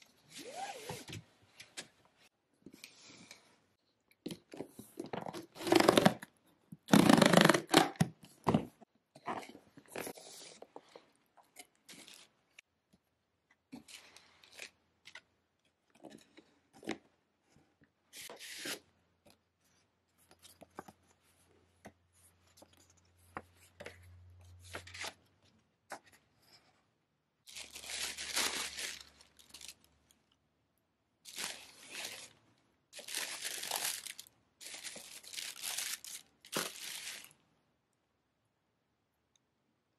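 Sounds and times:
tissue paper crinkling: 0:27.5 - 0:30.0, 0:31.3 - 0:32.4, 0:33.0 - 0:37.4
cardboard and paper rustling: 0:33.0 - 0:37.3.

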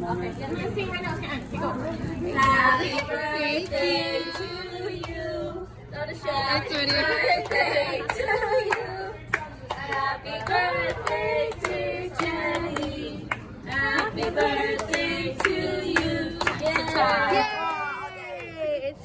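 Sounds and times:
group singing: 0:01.6 - 0:17.6
hand-clapping: 0:07.4 - 0:17.5.

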